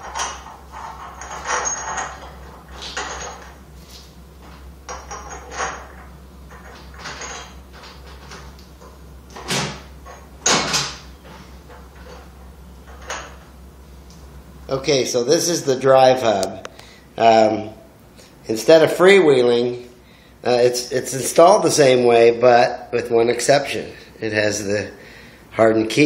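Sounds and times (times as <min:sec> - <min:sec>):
metal parts clicking and clunking: 0:00.0 - 0:13.5
steady low hum: 0:00.0 - 0:26.0.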